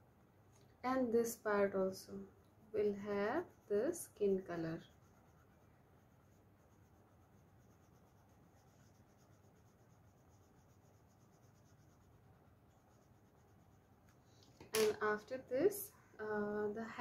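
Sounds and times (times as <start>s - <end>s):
colouring strokes scratching paper: 2.7s - 14.4s.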